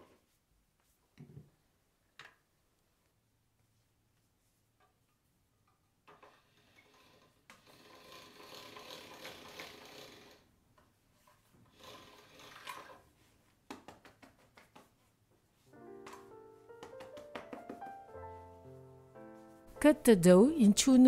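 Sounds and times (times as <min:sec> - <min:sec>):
pasta machine gears clicking: 0:06.2 - 0:10.4, 0:11.7 - 0:13.0.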